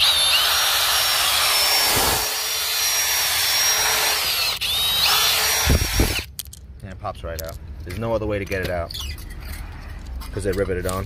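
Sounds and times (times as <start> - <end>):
cordless drill grinding metal: 0.0 - 6.3.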